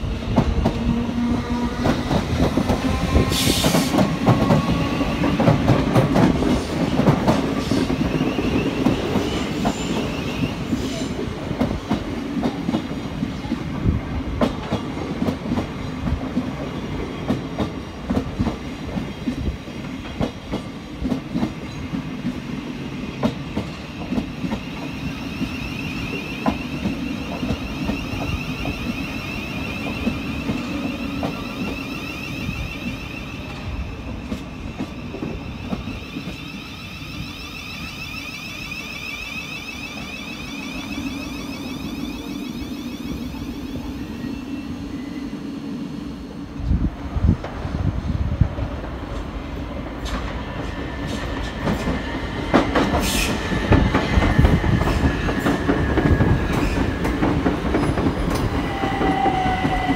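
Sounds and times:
train wheels clattering on track: 0.0 - 32.6, 33.4 - 36.6, 48.4 - 59.9
train rumble: 0.0 - 37.4, 39.9 - 59.9.

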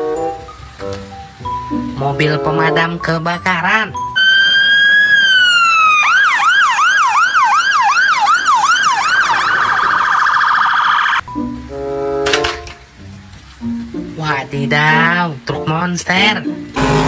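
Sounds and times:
fire engine siren: 4.2 - 11.2, 16.8 - 17.0.

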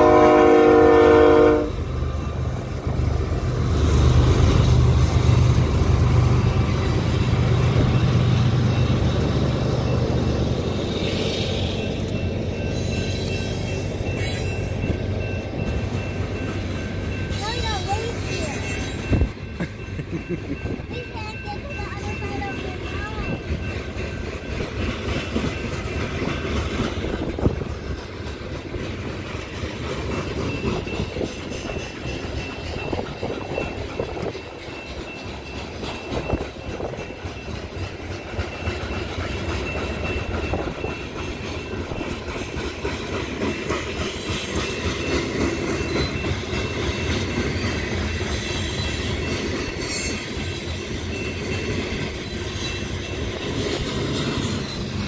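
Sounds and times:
train wheels rumbling on rail: 0.0 - 55.0
high wheel squeal: 10.6 - 15.0, 17.3 - 19.3, 47.5 - 55.0.

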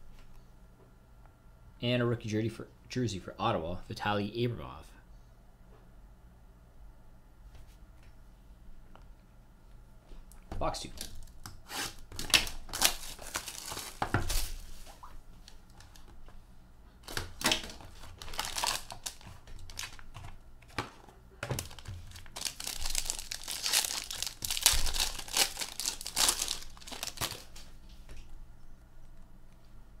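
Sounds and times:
plastic wrapping tearing and crinkling: 11.0 - 14.7, 17.0 - 20.4, 21.5 - 27.7.

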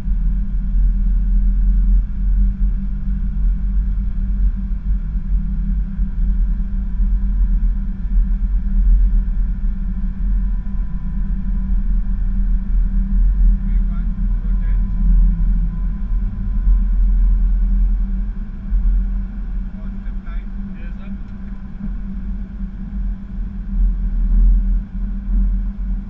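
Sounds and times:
faint steady whine: 0.0 - 26.0
jet engines rumbling at takeoff: 13.1 - 26.0.

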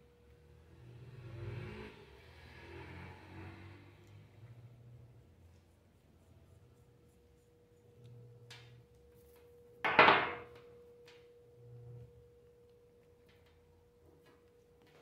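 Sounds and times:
faint steady hum: 4.0 - 15.0
metal valve knocking on wood: 9.8 - 10.5.

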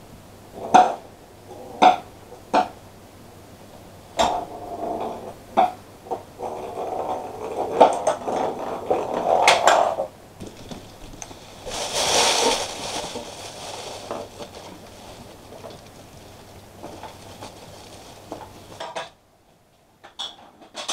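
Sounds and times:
ball rolling and rattling: 6.0 - 19.2
scraping rustle: 6.4 - 19.1.

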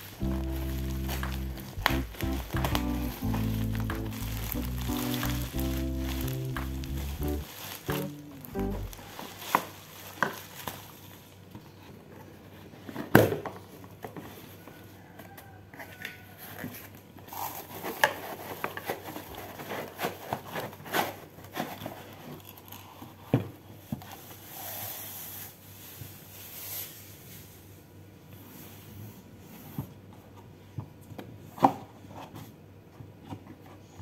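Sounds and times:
plastic packaging crinkling: 0.0 - 11.5.

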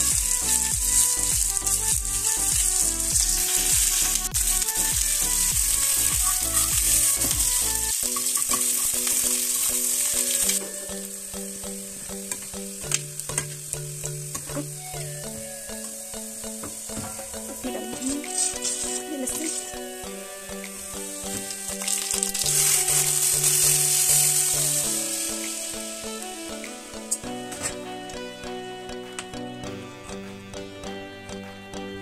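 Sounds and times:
onions frying in hot oil: 0.0 - 14.0, 21.0 - 26.3.

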